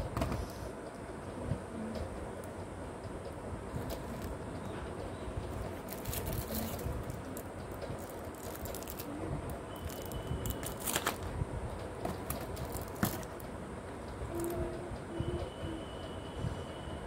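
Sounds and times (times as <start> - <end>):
low background rumble: 0.8 - 15.4
cardboard cartons tapping and scraping: 12.0 - 13.4.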